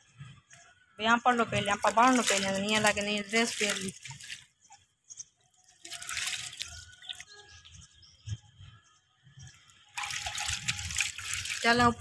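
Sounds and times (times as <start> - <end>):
water splashing and dripping: 1.4 - 4.8, 5.4 - 7.8, 9.9 - 12.0.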